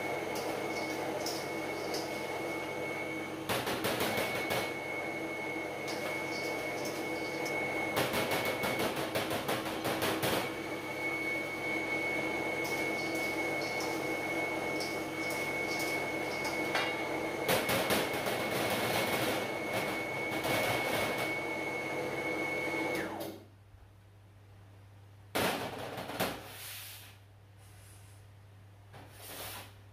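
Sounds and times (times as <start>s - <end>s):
grinding mill humming and whining: 0.0s - 23.4s.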